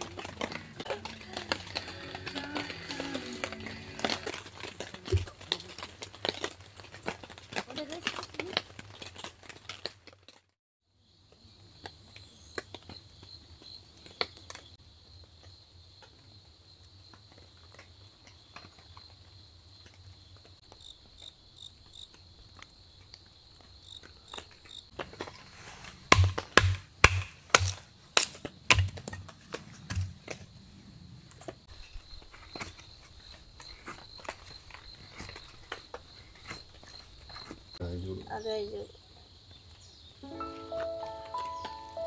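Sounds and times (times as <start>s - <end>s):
insects trilling: 0.0s - 6.8s, 11.0s - 26.6s, 27.4s - 42.0s
footsteps: 0.0s - 10.4s, 24.4s - 30.6s, 31.3s - 37.8s.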